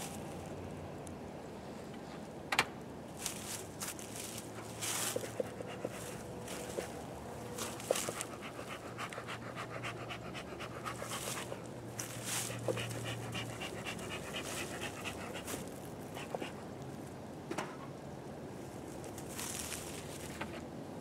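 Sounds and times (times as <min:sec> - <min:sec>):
fast panting rhythm: 0:05.0 - 0:16.6.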